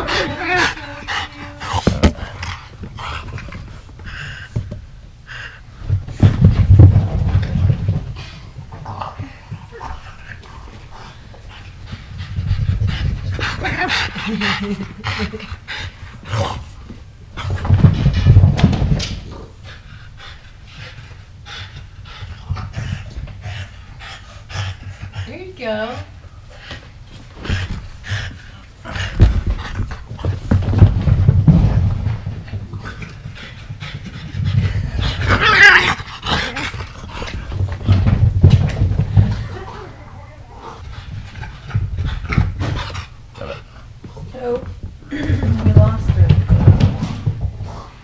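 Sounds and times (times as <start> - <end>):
dogs breathing hard: 0.0 - 48.0
dog running across carpet: 27.0 - 43.1.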